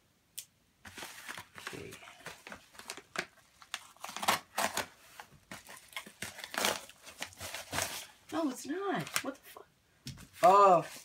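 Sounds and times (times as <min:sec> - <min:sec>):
paper envelope tearing: 0:00.9 - 0:04.9, 0:05.6 - 0:08.1.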